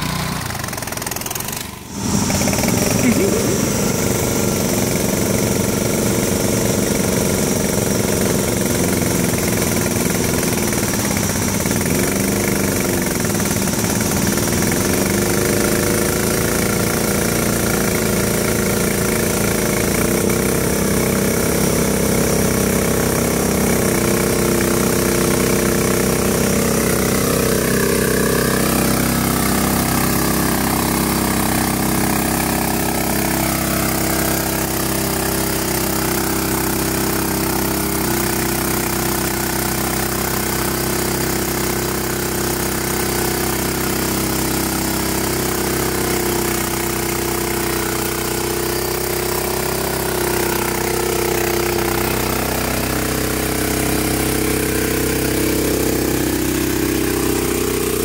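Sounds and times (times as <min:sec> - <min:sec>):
small engine running under load: 0:00.0 - 0:58.0.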